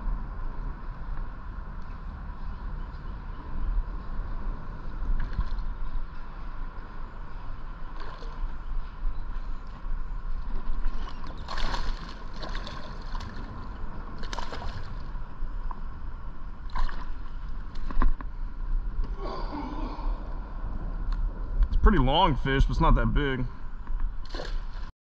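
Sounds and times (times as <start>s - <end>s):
water sloshing: 7.9s - 8.5s, 10.4s - 15.2s, 16.6s - 18.1s
fish splashing at surface: 11.4s - 13.4s.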